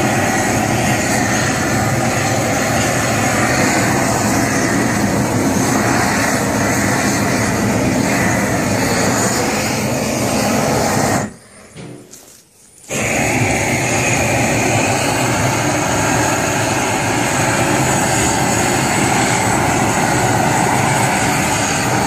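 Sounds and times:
gas torch hissing: 0.0s - 22.0s.

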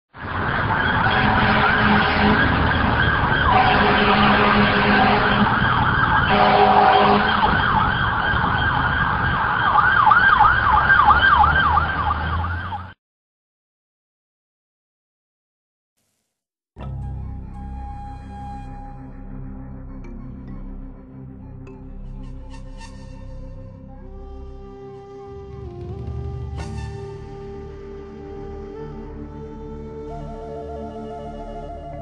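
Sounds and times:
emergency vehicle siren: 0.1s - 13.0s, 22.4s - 32.0s.

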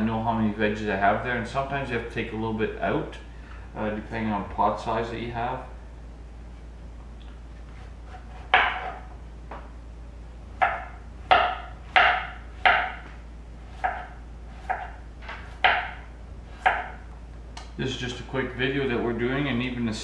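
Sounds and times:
knife cutting on cutting board: 7.7s - 9.1s, 13.7s - 16.9s.

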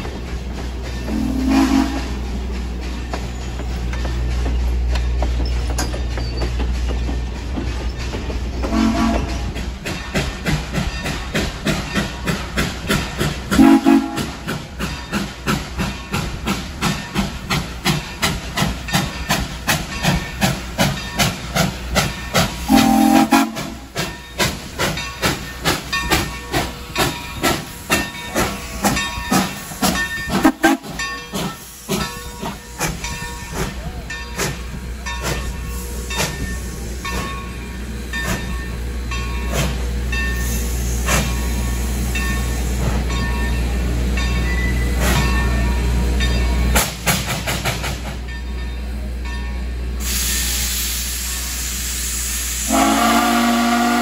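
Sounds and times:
steam train chugging: 0.0s - 54.0s
low steam whistle blasts: 1.1s - 2.2s, 8.7s - 9.4s, 13.6s - 14.5s, 22.6s - 23.9s, 50.0s - 54.0s
steam hiss: 8.4s - 43.2s, 49.8s - 54.0s.

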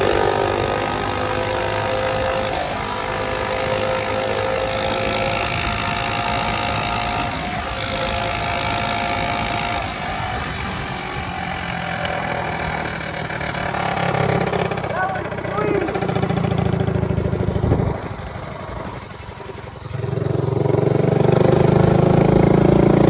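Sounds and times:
small engines running: 0.0s - 23.0s.

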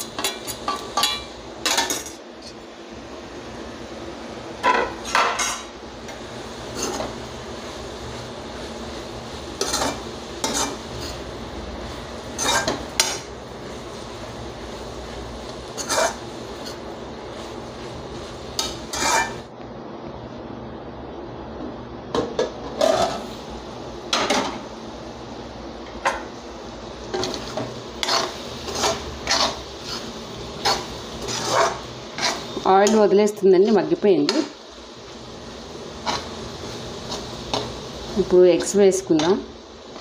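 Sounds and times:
steady background hiss: 0.0s - 40.0s
spoon scraping metal pan: 9.6s - 11.2s, 12.4s - 13.2s, 15.8s - 16.8s, 18.6s - 19.4s, 27.2s - 33.1s.

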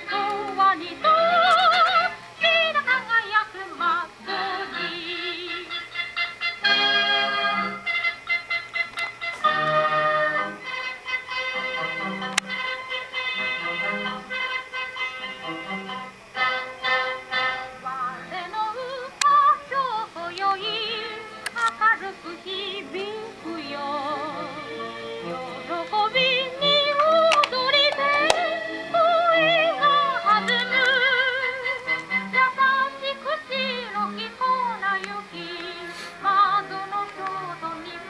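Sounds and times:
woman singing with vibrato: 0.0s - 5.8s, 17.3s - 38.0s
instrumental accompaniment: 4.0s - 38.0s.

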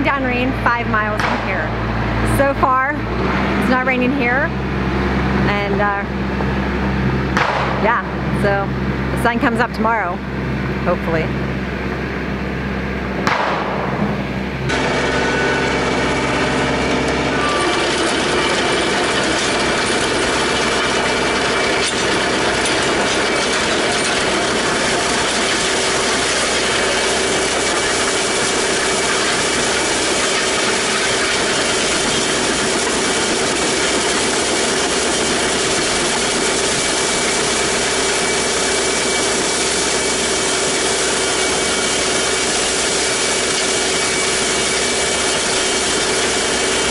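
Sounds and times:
tractor engine running: 0.0s - 46.9s
gravel grinding and scraping: 13.8s - 46.9s.

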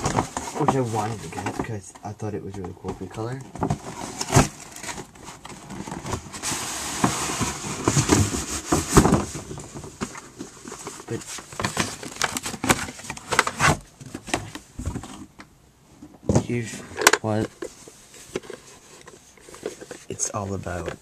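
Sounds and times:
crinkling handling noise: 0.0s - 21.0s.

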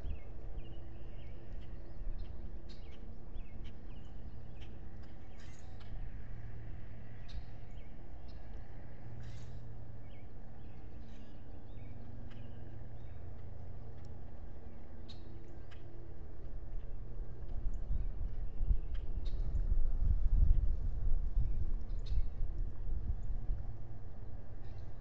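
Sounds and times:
distant bird chirps: 0.0s - 16.2s
steady low rumble: 0.0s - 25.0s.

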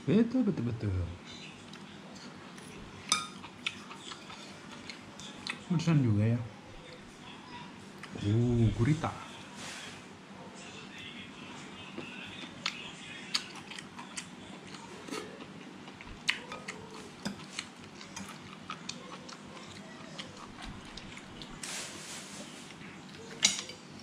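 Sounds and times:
chewing: 1.6s - 5.7s, 11.9s - 21.6s.

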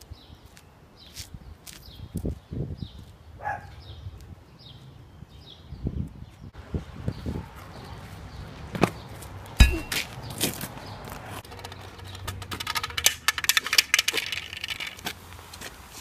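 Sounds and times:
sharp knock with metallic ring: 9.6s - 10.1s.

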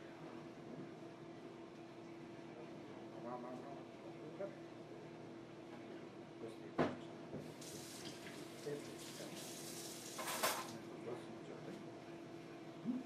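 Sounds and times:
faucet water splashing on hand: 7.6s - 10.8s.

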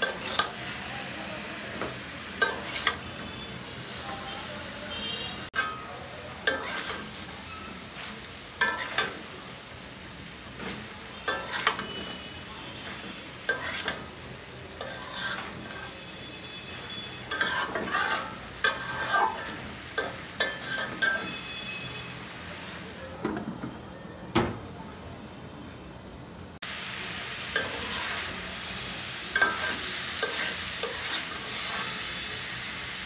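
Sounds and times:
metal spatula scraping a pan: 0.0s - 0.8s, 1.8s - 3.5s, 5.5s - 9.3s, 10.5s - 21.6s, 27.5s - 28.4s, 29.3s - 32.3s
food sizzling: 0.0s - 23.0s, 26.6s - 33.0s.

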